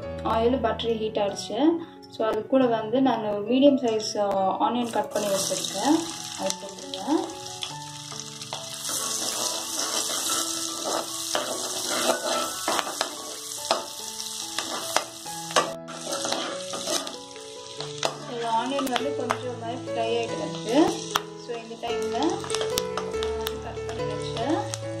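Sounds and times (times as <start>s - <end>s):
onions sizzling in a pan: 4.9s - 25.0s
metal spoon scraping a pan: 8.1s - 19.0s.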